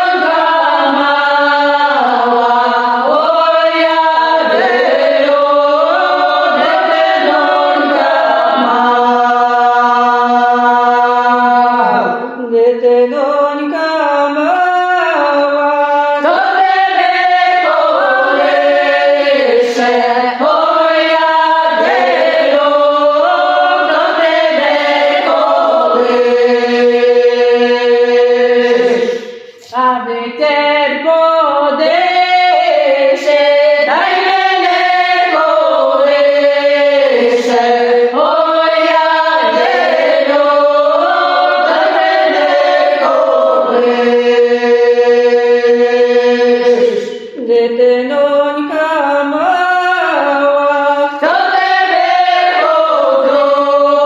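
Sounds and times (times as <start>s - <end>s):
women singing unaccompanied: 0.0s - 54.0s.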